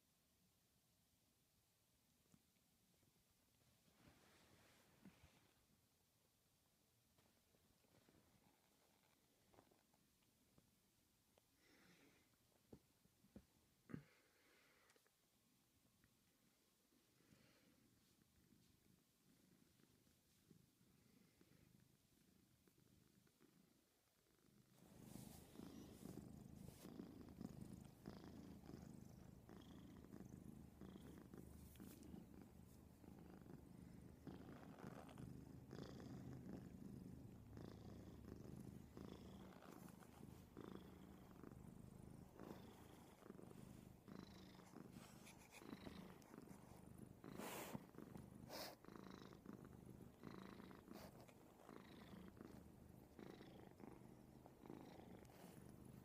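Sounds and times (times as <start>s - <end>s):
cat purring: 15.8s - 56.0s.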